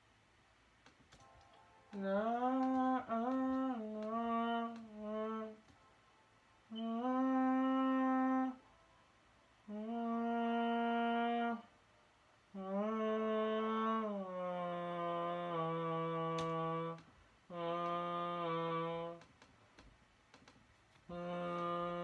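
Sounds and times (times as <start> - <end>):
person humming a tune: 1.1 - 5.8, 6.7 - 8.7, 9.6 - 11.7, 12.5 - 19.4, 21.0 - 22.0.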